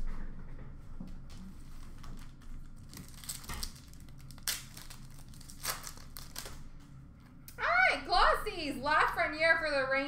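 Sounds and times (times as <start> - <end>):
foil wrappers crinkling: 1.7 - 6.7.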